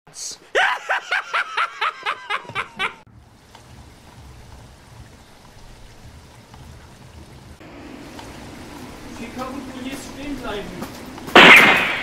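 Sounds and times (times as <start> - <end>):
rapid laugh: 0.5 - 3.0
steady rain: 3.1 - 12.0.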